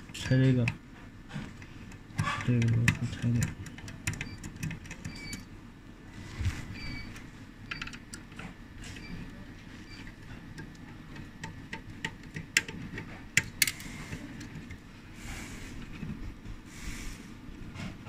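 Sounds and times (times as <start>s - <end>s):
cables and connectors clicking: 0.1s - 0.8s, 1.4s - 5.5s, 7.1s - 14.9s.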